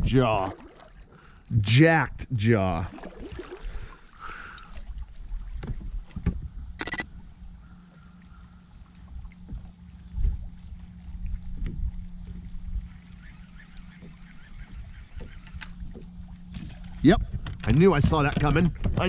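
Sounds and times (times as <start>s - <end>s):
steady low hum: 6.5s - 18.8s
wind on microphone: 11.2s - 16.1s
loud rasping burst: 12.9s - 15.8s.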